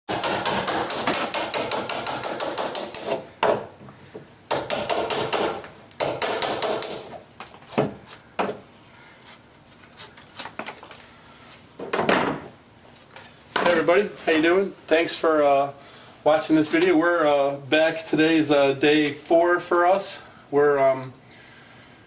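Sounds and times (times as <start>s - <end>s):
chisel knocking on wood: 0.1s - 3.7s, 4.5s - 7.1s.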